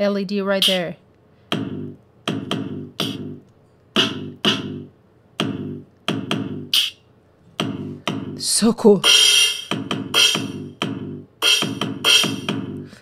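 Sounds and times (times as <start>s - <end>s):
electronic drum hits: 1.5s - 3.4s, 4.0s - 7.0s, 7.6s - 8.4s, 9.0s - 12.8s.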